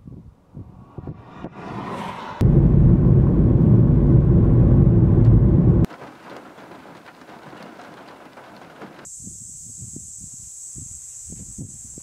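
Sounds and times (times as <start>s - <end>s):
heavy low rumble: 0.1s - 5.9s
crackling hiss: 5.8s - 12.0s
cicadas buzzing: 8.1s - 12.0s.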